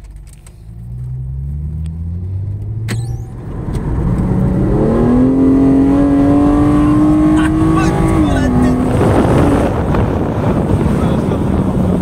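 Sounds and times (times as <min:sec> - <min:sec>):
car engine accelerating: 0:00.0 - 0:12.0
sharp click: 0:02.6 - 0:03.9.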